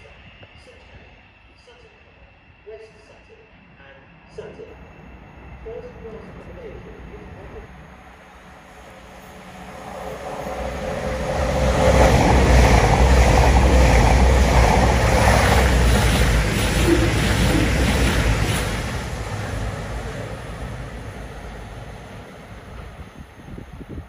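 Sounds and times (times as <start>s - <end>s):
train wheels rumbling on rails: 8.6s - 24.0s.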